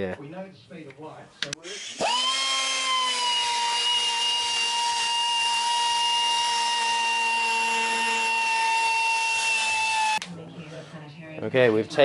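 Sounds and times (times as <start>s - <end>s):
power grinder grinding metal: 1.6s - 10.2s.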